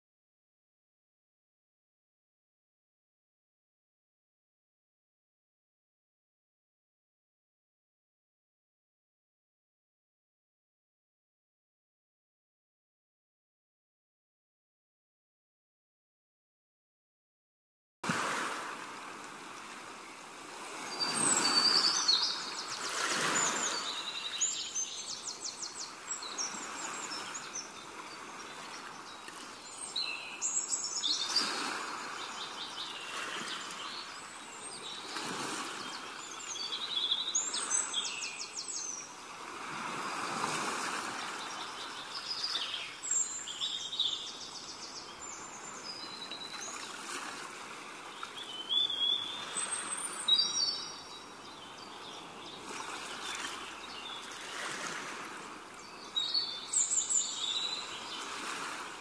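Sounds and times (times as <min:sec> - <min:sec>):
small birds chirping: 0:20.9 - 0:39.2, 0:41.2 - 0:46.9, 0:48.1 - 0:54.6, 0:55.8 - 0:58.4.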